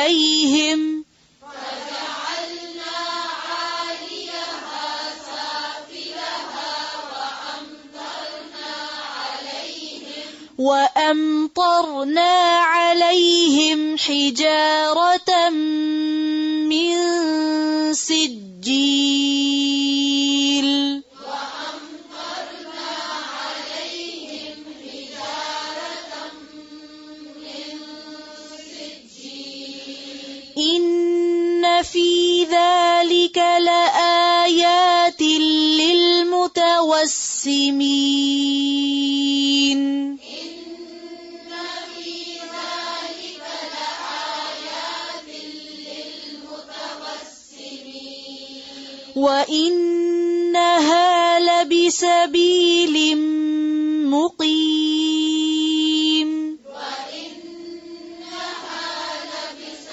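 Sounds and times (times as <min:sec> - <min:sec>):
single person reciting: 0:00.0 - 0:59.9
group of voices chanting in unison: 0:01.4 - 0:10.5, 0:21.1 - 0:30.6, 0:40.2 - 0:49.2, 0:56.6 - 0:59.9.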